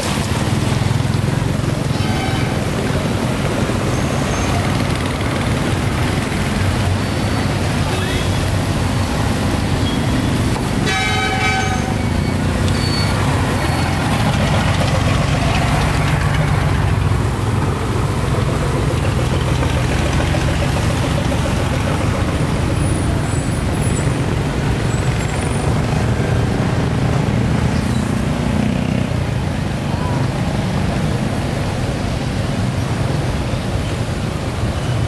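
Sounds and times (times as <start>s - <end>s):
road traffic rumble: 0.0s - 35.0s
vehicle horn: 2.0s - 2.7s, 10.8s - 12.1s.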